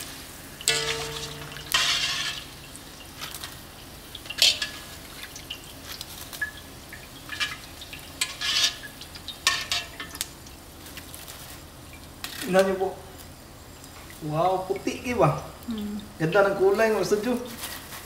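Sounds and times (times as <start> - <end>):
oil sizzling: 0.0 - 18.0
fried pieces rattling in wire strainer: 0.7 - 3.6.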